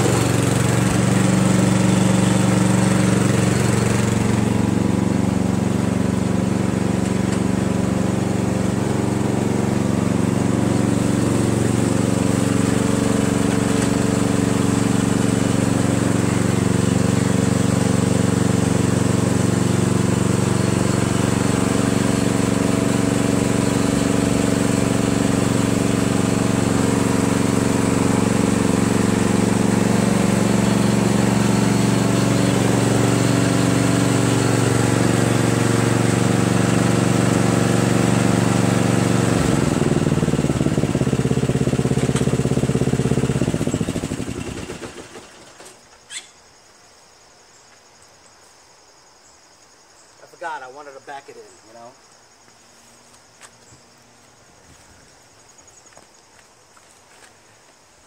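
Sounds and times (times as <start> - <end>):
mower engine running: 0.0 - 45.8.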